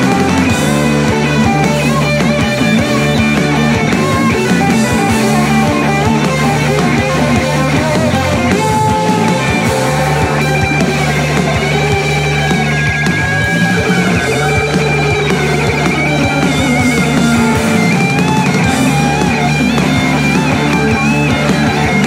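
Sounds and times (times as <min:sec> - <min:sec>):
drum kit beat: 0:00.0 - 0:22.0
electric guitar: 0:00.0 - 0:22.0
sustained low notes: 0:00.0 - 0:22.0.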